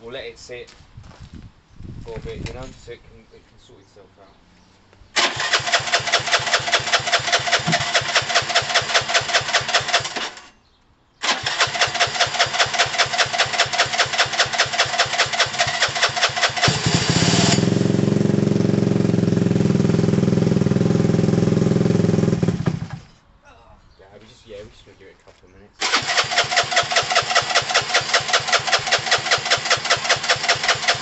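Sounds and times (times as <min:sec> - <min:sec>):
electric starter cranking engine: 0:05.2 - 0:10.5, 0:11.2 - 0:18.0, 0:25.8 - 0:31.0
motorcycle engine running: 0:05.4 - 0:09.9, 0:11.9 - 0:23.1.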